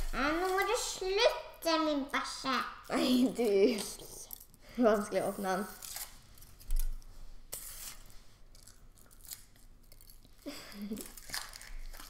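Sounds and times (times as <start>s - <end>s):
child's voice: 0.0s - 5.8s
foil wrapper crinkling: 7.6s - 12.0s.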